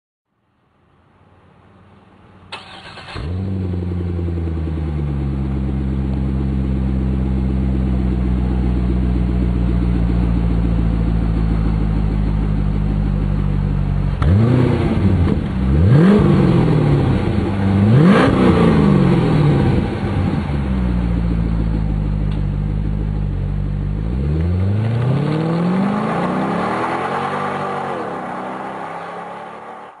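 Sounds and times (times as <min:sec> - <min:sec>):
car engine idling: 0:01.2 - 0:25.0
car engine starting: 0:02.4 - 0:30.0
car accelerating away: 0:02.5 - 0:30.0
car engine revving: 0:02.5 - 0:30.0.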